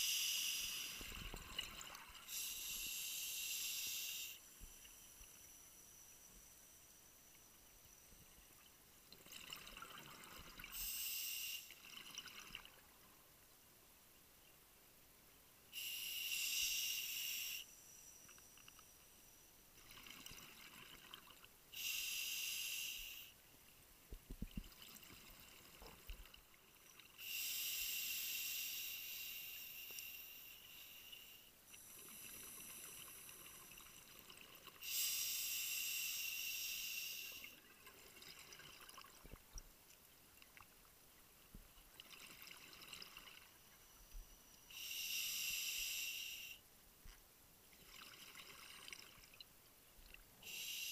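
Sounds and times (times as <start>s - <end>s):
exhaled bubbles hissing underwater: 0.0s - 7.3s, 21.8s - 23.3s, 44.7s - 46.6s, 50.4s - 50.9s
diver breathing through regulator: 50.4s - 50.9s.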